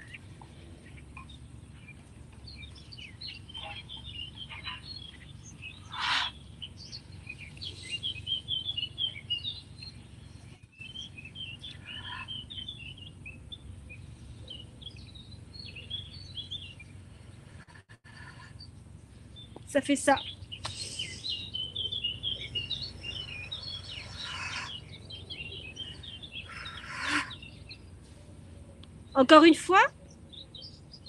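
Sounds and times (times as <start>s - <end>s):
small birds chirping: 0.0s - 31.0s
forced exhalation: 20.6s - 21.3s.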